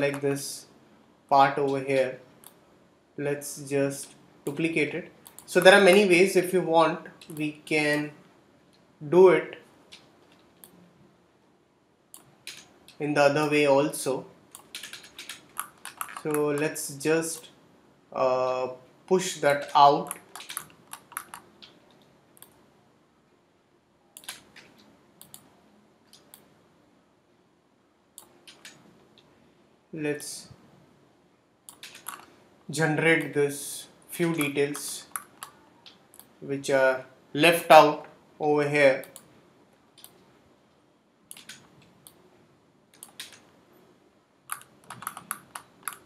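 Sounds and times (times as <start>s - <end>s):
computer mouse clicks: 2.4s - 2.6s, 5.2s - 6.1s, 12.1s - 13.0s, 14.5s - 16.7s, 19.6s - 22.6s, 24.2s - 26.5s, 28.2s - 29.3s, 31.7s - 32.4s, 34.2s - 36.4s, 39.9s - 40.2s, 41.3s - 42.2s, 42.9s - 43.5s, 44.5s - 46.0s
keyboard clicks: 14.5s - 16.7s, 19.5s - 22.6s, 24.2s - 25.5s, 28.2s - 28.8s, 31.7s - 32.4s, 34.2s - 36.3s, 41.3s - 42.2s, 42.9s - 43.5s, 44.5s - 46.0s.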